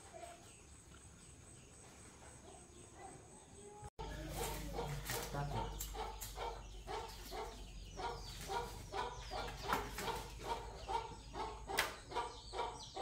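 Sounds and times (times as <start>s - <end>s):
chicken clucking: 4.0s - 13.0s.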